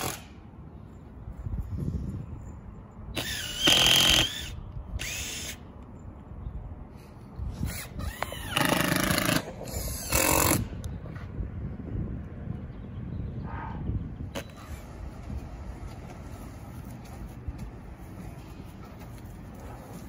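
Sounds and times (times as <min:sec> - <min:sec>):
cordless drill driving screws: 0:03.2 - 0:05.6.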